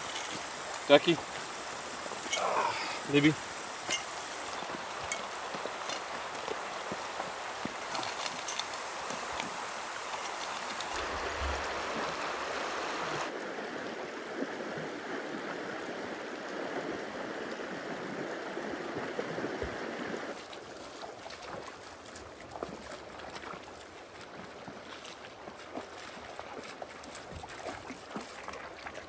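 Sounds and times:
river rushing over stones: 0.0 - 20.4
people and dogs wading: 0.0 - 29.0.

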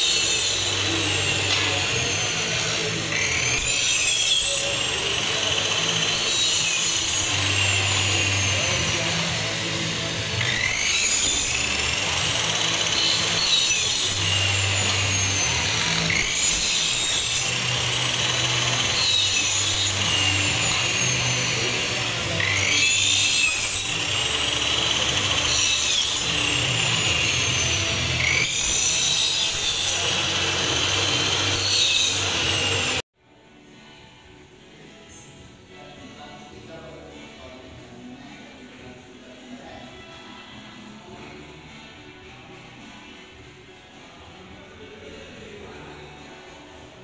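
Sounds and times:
power saw cutting metal: 0.0 - 33.0.

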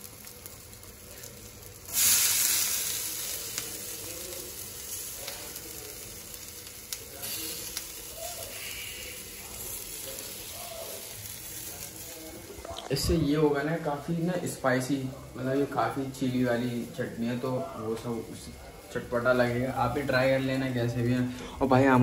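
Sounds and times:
loud sizzle in frying pan: 0.0 - 22.0.

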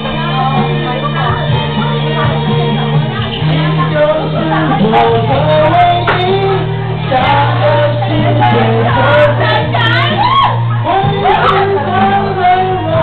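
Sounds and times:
backing track with bass line: 0.0 - 13.0
man singing into microphone: 3.3 - 13.0.

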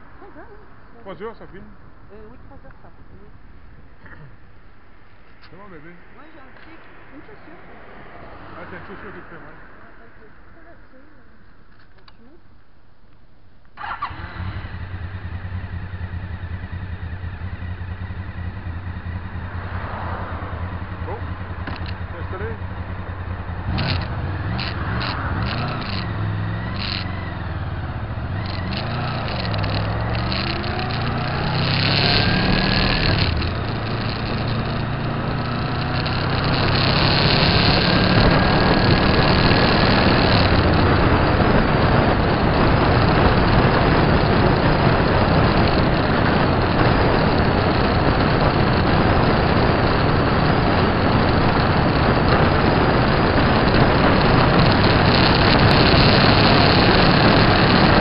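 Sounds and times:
motorcycle engine accelerating: 7.1 - 10.7, 13.8 - 58.0
wind rush: 19.4 - 58.0.

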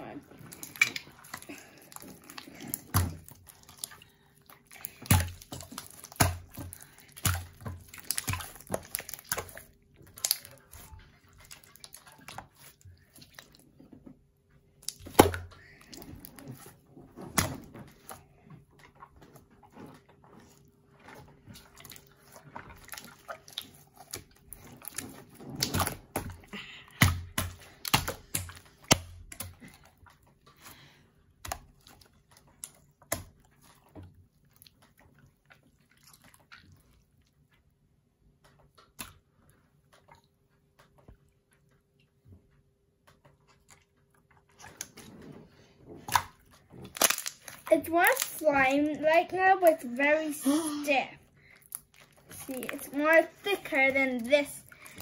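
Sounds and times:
wet slime squishes: 0.0 - 55.0
hands slapping slime: 4.7 - 10.7, 14.8 - 16.4, 22.9 - 29.8, 46.1 - 48.7.

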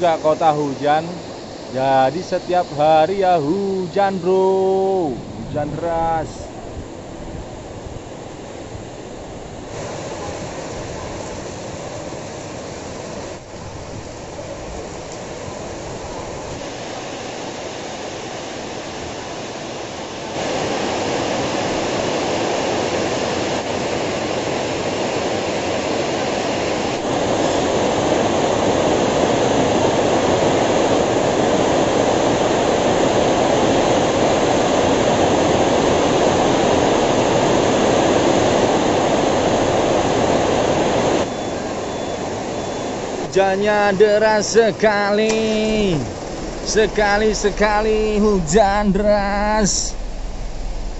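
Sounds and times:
heavy rain pouring: 26.6 - 50.9.

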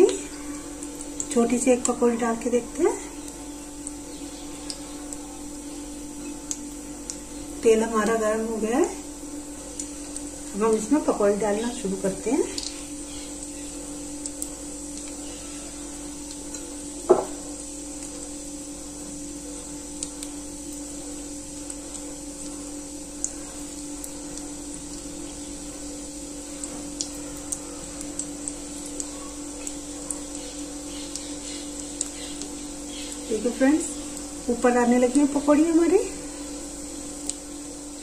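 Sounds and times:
batter frying in hot oil: 0.0 - 38.0
oil crackles and pops: 0.0 - 38.0
steady low hum: 0.0 - 38.0
sharp knock: 17.1 - 17.4.

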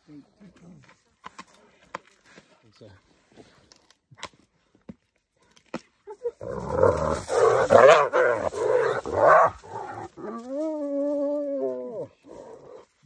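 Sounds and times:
hyena whining: 6.1 - 12.9
hyenas snarling and growling: 6.1 - 13.0.

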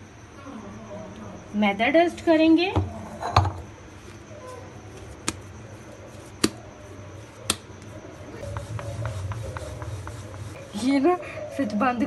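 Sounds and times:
hands kneading dough: 4.0 - 6.7, 7.3 - 11.0.

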